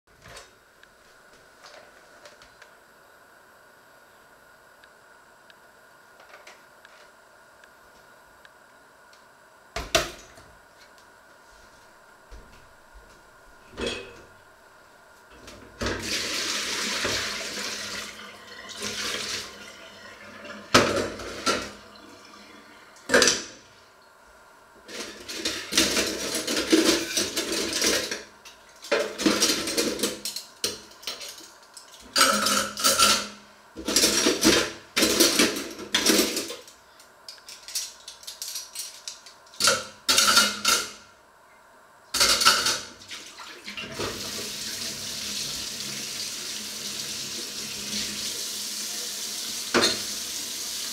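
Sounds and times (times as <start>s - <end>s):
dishes and pots clattering: 13.8s - 14.2s, 32.1s - 36.6s
tap water running: 15.8s - 23.1s, 42.3s - 50.9s.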